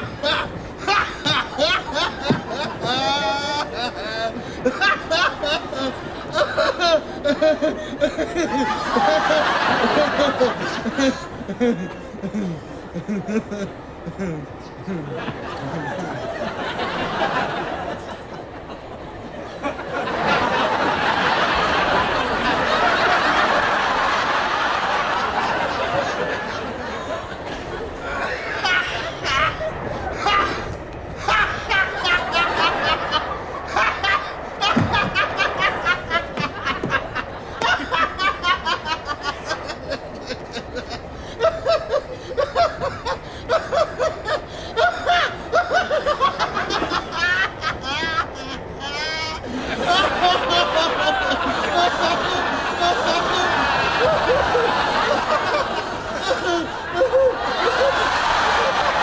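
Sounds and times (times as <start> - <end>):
quiet chuckling: 0.0 - 16.6
audience laughter: 0.0 - 59.0.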